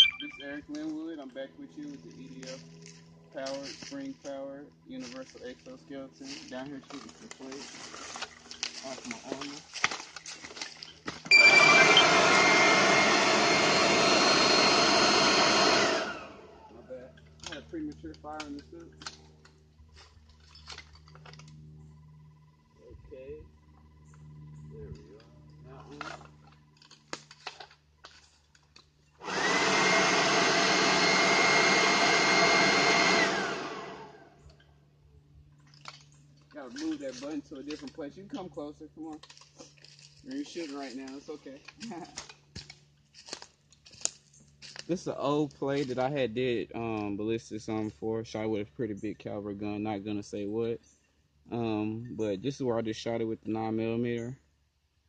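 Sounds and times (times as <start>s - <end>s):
electric fan whine: 0.0s - 27.6s, 28.5s - 47.8s
electric ducted fan rushing: 11.4s - 17.7s, 29.2s - 34.4s.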